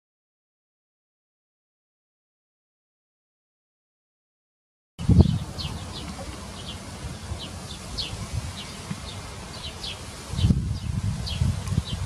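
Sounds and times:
steady low rumble: 5.0 - 12.0.

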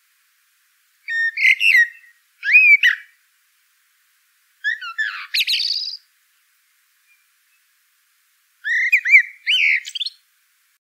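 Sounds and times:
songbird whistling and trilling: 1.1 - 3.1, 4.6 - 6.0, 7.0 - 7.6, 8.6 - 10.2.

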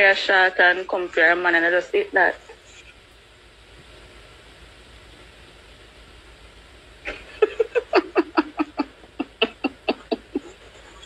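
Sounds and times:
person laughing hard: 7.1 - 11.0.

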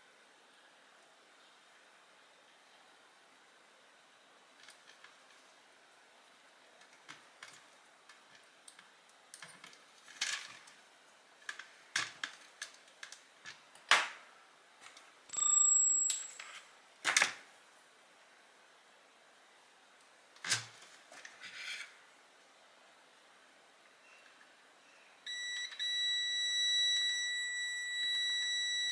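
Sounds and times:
clicks and knocks of small parts: 11.4 - 14.2
high beep: 15.3 - 16.4, 25.3 - 28.9.

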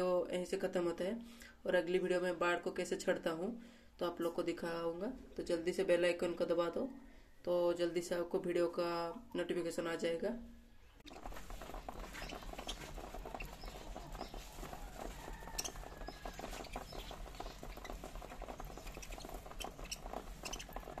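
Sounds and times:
faint bird chirp: 10.5 - 21.0
beaks pecking and cracking seed: 11.0 - 21.0.

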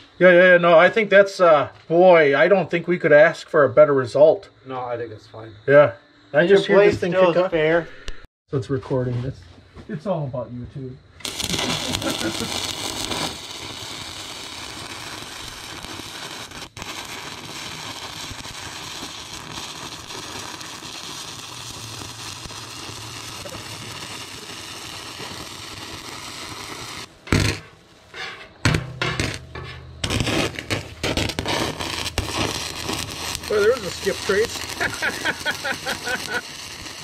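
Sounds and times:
welding arc crackling: 11.2 - 37.0
welding arc hissing: 11.2 - 37.0.

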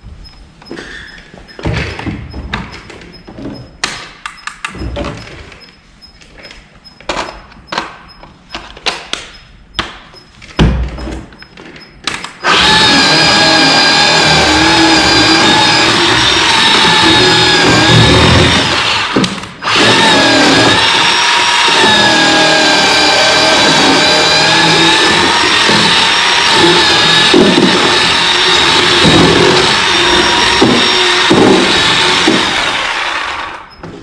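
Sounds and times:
chainsaw cutting wood: 12.5 - 33.6.

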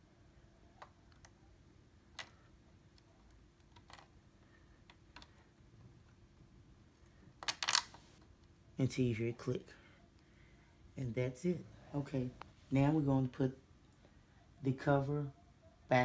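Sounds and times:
faint plastic and metal clicks: 2.1 - 4.2, 4.8 - 6.2.

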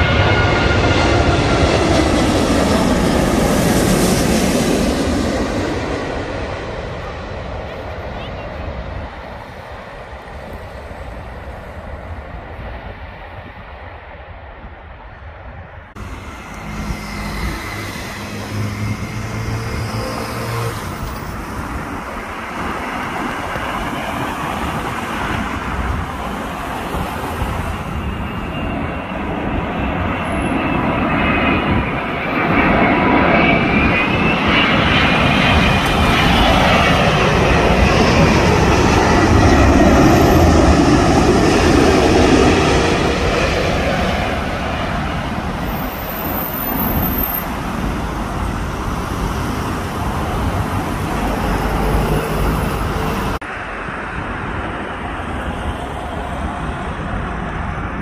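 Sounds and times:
jet airliner roar overhead: 0.0 - 58.0
high engine whine: 15.6 - 58.0.

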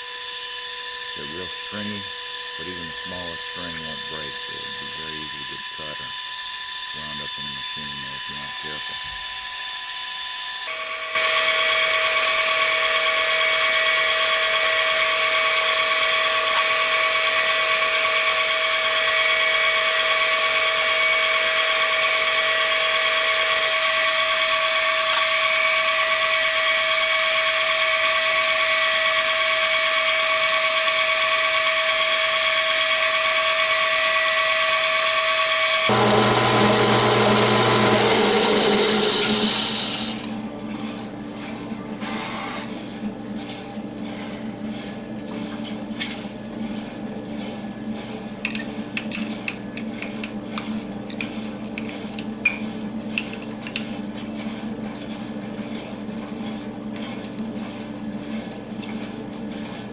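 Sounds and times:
metal lathe whining: 10.6 - 40.3.

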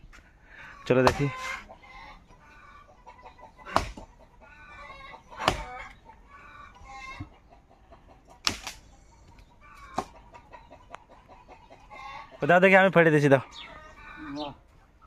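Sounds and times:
hens clucking: 0.3 - 15.0
axe chopping into log: 1.0 - 1.4, 3.7 - 4.1, 5.4 - 5.8, 8.4 - 8.8.

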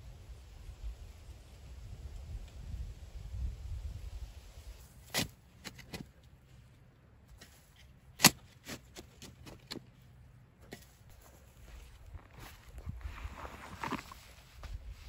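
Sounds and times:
shovel scraping into soil: 4.8 - 6.3, 7.3 - 10.0, 10.6 - 11.5, 12.6 - 15.0.

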